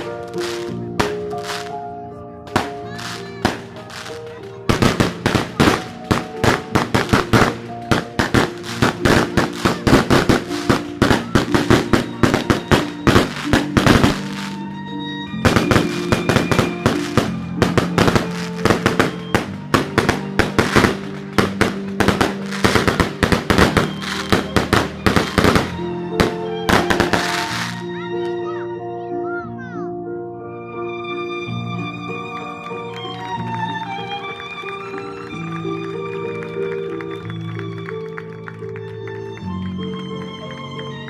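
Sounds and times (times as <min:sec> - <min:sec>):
firecrackers crackling and banging: 0:00.0 - 0:01.8, 0:02.5 - 0:14.7, 0:15.4 - 0:28.4
music with held notes: 0:00.0 - 0:41.0.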